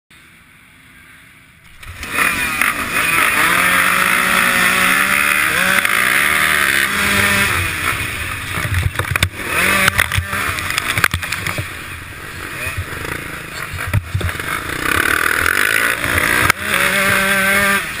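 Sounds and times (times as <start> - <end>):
dirt bike engines revving: 0.8 - 18.0
mud knocking on camera: 8.6 - 11.7.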